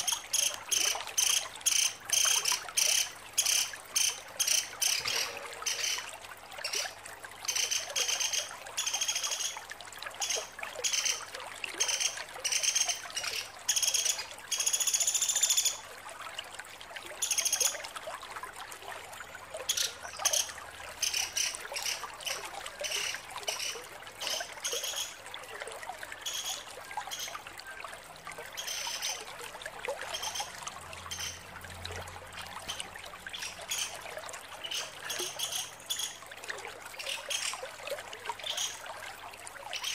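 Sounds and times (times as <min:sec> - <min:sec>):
woodpecker high-pitched chattering calls: 0:00.0 - 0:06.0, 0:11.8 - 0:15.7, 0:19.7 - 0:22.0, 0:22.8 - 0:25.2, 0:30.2 - 0:30.5, 0:31.1 - 0:31.4, 0:34.6 - 0:36.2.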